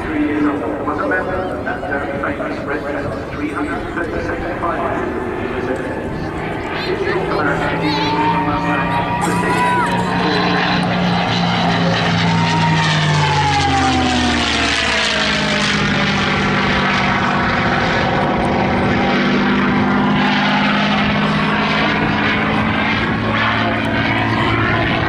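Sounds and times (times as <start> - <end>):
propeller plane engine passing overhead: 0.0 - 25.0.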